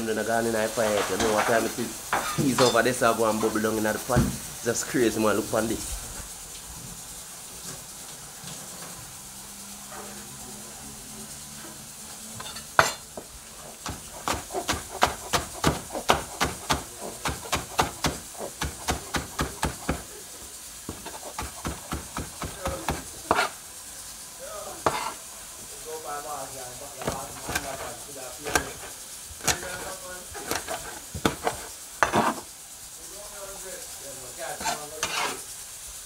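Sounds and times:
knife chopping on cutting board: 12.4 - 20.1, 20.9 - 23.5, 24.8 - 25.2, 27.0 - 32.4, 34.6 - 35.4.

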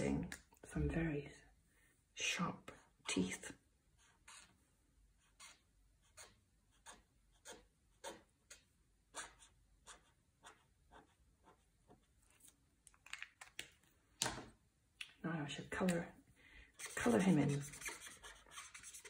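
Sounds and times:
felt-tip pen scratching on paper: 4.0 - 4.6, 5.2 - 12.1, 16.7 - 19.0.

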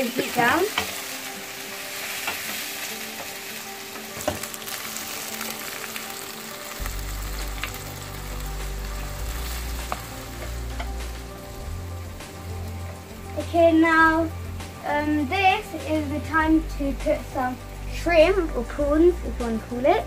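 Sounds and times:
vegetables sizzling in wok: 0.0 - 20.0
spatula tapping pan: 4.0 - 4.7.

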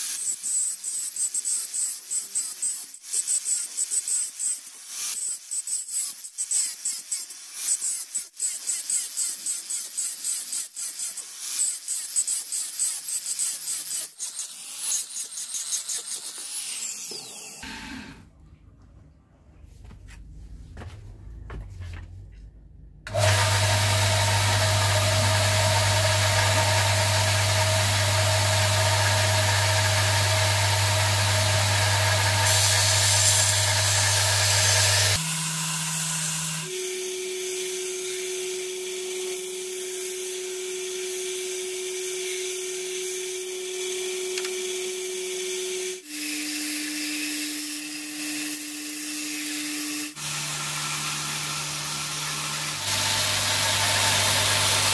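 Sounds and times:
angle grinder grinding steel: 0.0 - 18.2, 23.1 - 54.9
belt grinder motor hum: 23.1 - 38.1, 50.1 - 54.9.

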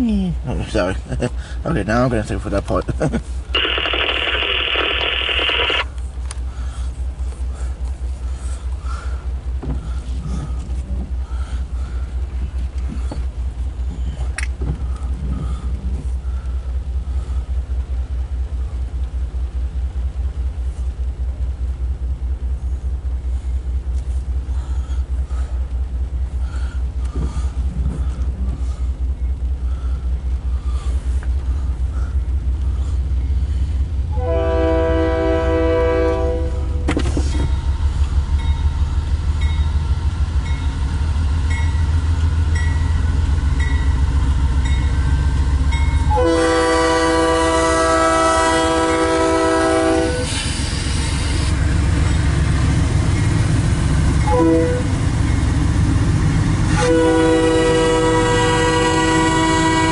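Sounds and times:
locomotive air horn blasts: 34.1 - 36.9, 46.0 - 50.5, 54.2 - 55.0, 56.7 - 59.9.

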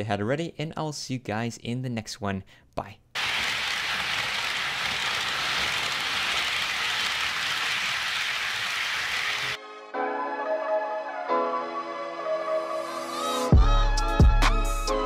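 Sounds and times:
model train wheels rattling: 3.2 - 9.6
music: 9.6 - 15.0.

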